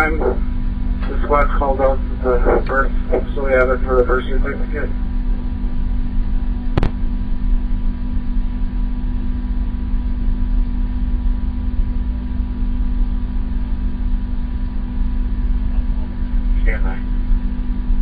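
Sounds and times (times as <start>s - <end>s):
low hum and rumble: 0.0s - 18.0s
sharp click: 6.8s - 7.0s.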